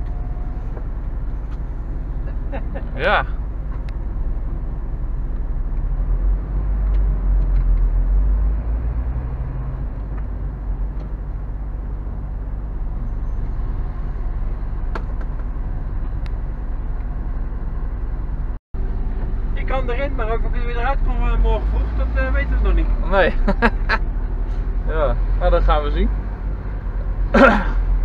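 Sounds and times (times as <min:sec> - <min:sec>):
lorry engine idling: 0:00.0 - 0:05.8.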